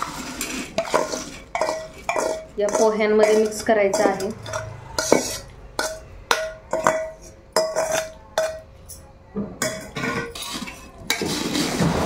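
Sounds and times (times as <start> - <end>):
spoon clinking in steel bowl: 0.8 - 9.0.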